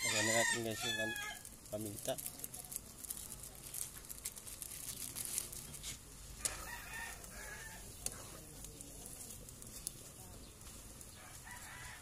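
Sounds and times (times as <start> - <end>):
rooster crowing: 0.0 - 1.4, 6.4 - 7.9, 11.1 - 12.0
liquid simmering in a wok: 0.0 - 12.0
wood fire crackling: 0.0 - 12.0.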